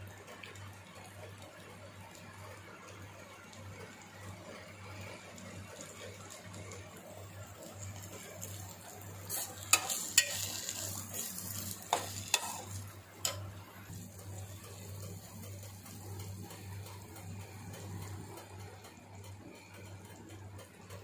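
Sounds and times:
egg frying in a pot: 0.0s - 21.0s
metal spoon scraping a pot: 9.3s - 13.4s
spoon clinking against pot: 9.7s - 10.7s.

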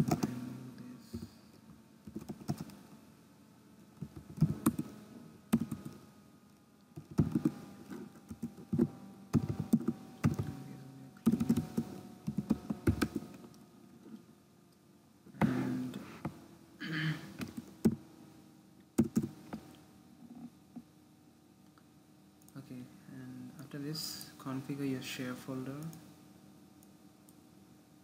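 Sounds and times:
keyboard typing clicks: 0.0s - 0.4s, 2.1s - 2.8s, 4.0s - 4.9s, 5.5s - 6.0s, 7.0s - 7.5s, 8.3s - 10.5s, 11.2s - 13.2s, 19.0s - 19.3s.

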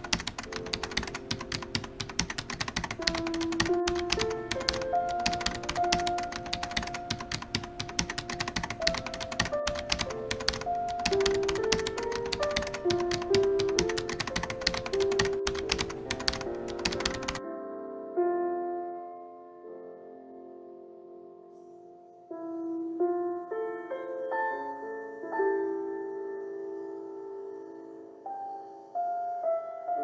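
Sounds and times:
rapid keyboard typing: 0.0s - 17.4s
soft instrumental melody: 0.0s - 30.0s.

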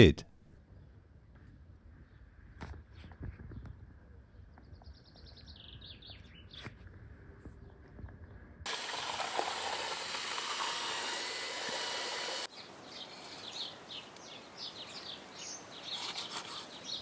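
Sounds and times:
small birds chirping: 2.9s - 6.8s, 12.4s - 17.0s
electric paddle mixer stirring cement: 8.7s - 12.5s.

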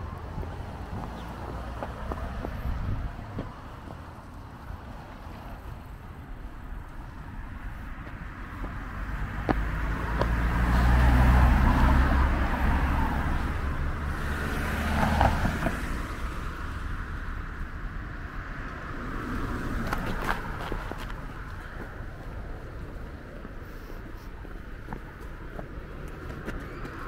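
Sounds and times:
car driving past: 8.9s - 16.4s.

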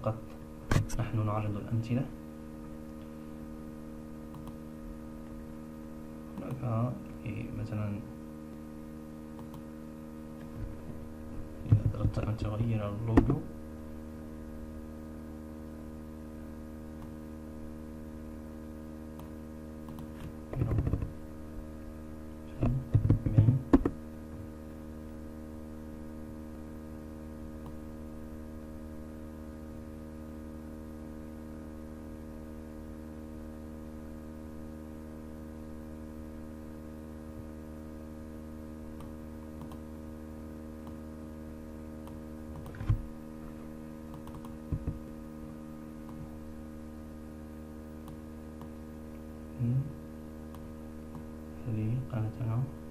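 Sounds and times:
steady electrical hum: 0.0s - 52.9s
keyboard typing: 44.1s - 44.6s.

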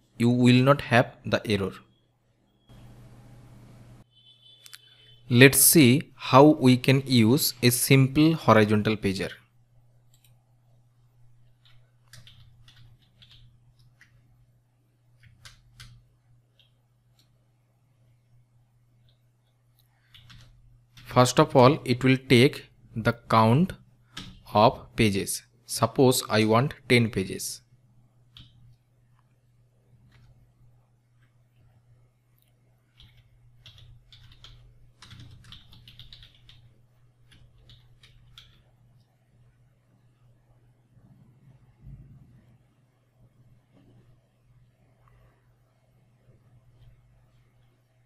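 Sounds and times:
low steady hum: 0.0s - 48.0s
keyboard typing: 11.4s - 14.2s, 15.1s - 17.4s, 19.0s - 21.2s, 24.1s - 24.5s, 28.3s - 28.8s, 30.0s - 30.5s, 32.9s - 38.7s
low hum: 36.8s - 48.0s.

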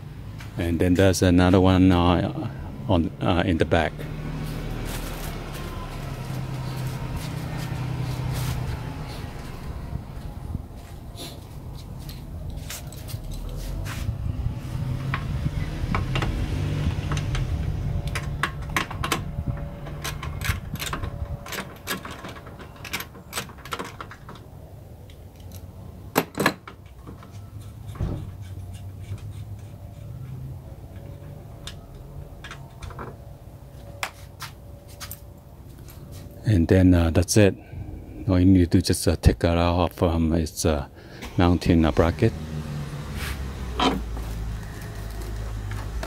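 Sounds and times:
low rumble: 3.9s - 12.6s.

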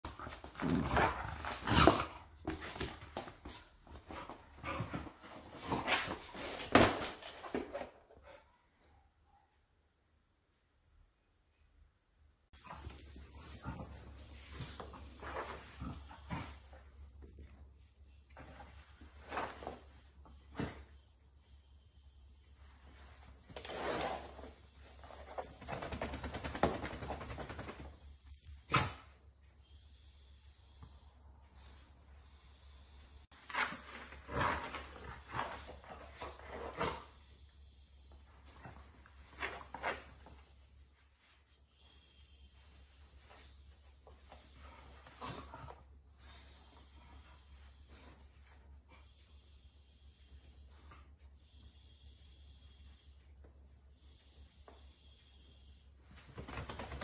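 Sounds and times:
puppy scuffling on a rug: 0.0s - 8.0s.

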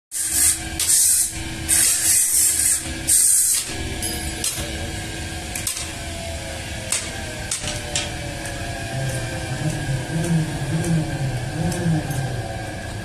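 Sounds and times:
steady hum: 0.2s - 13.0s.

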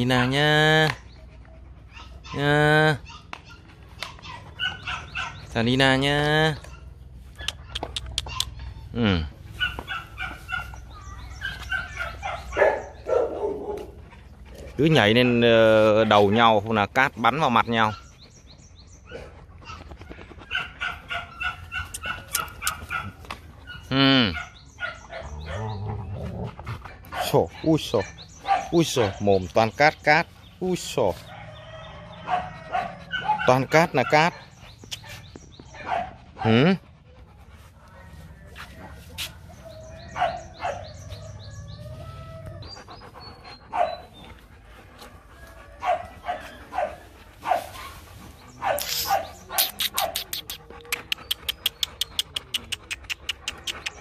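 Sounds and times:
dog panting: 0.0s - 2.4s, 6.6s - 54.0s
puppies barking and yelping: 0.0s - 54.0s
dog barking: 4.2s - 5.4s, 9.6s - 10.8s, 11.5s - 14.0s, 20.5s - 23.2s, 27.2s - 29.2s, 32.2s - 35.2s, 35.8s - 36.7s, 40.1s - 40.9s, 45.8s - 47.8s, 48.6s - 50.3s
dog growling: 25.1s - 27.0s.

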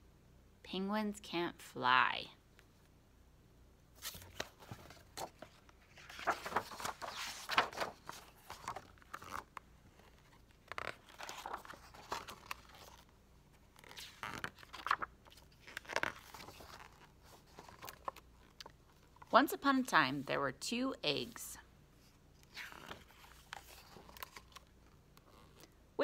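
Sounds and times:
book pages turning: 4.0s - 19.3s, 22.4s - 25.7s.

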